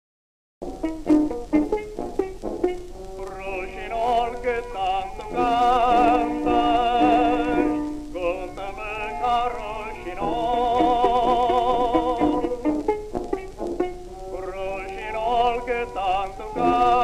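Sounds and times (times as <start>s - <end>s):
held melodic notes with vibrato: 0.6s - 17.0s
person singing: 3.1s - 12.8s, 13.8s - 17.0s.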